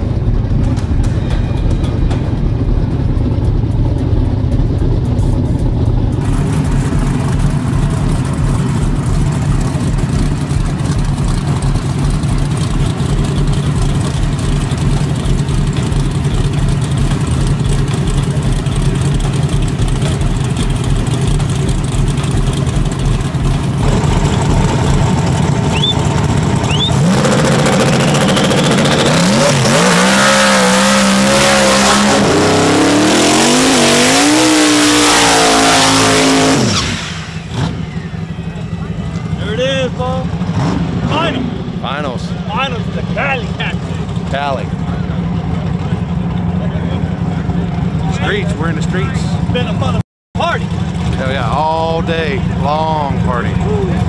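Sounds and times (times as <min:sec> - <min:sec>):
car engines idling: 0:00.0 - 0:54.0
engine revving: 0:00.0 - 0:54.0.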